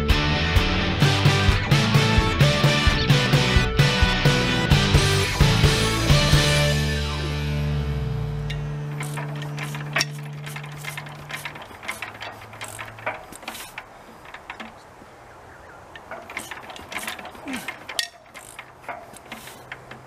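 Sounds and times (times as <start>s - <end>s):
music: 0.0s - 10.4s
metallic clicks and clanks: 8.4s - 14.9s, 15.8s - 20.0s.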